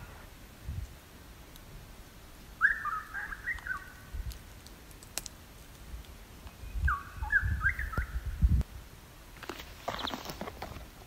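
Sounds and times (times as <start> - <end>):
bird warbling call: 2.6 - 4.1, 6.6 - 8.2.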